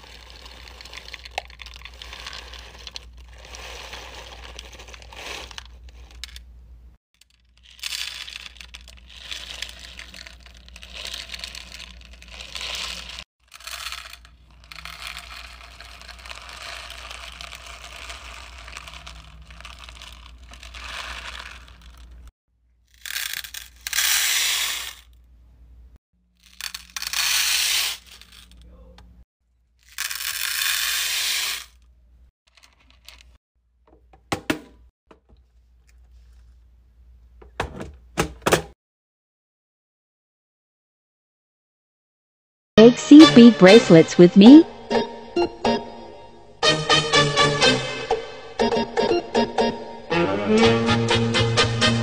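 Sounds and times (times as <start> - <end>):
beads pouring and rattling: 0.0 - 6.4, 7.2 - 22.3, 22.9 - 25.2, 26.4 - 28.6, 29.8 - 31.8, 32.5 - 33.3
plastic bag crinkling: 0.0 - 6.4, 7.2 - 22.3.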